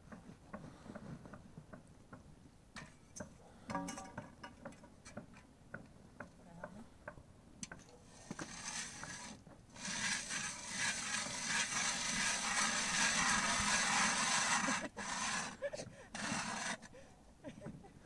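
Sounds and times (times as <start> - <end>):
ice auger grinding scrape: 8.0 - 16.9.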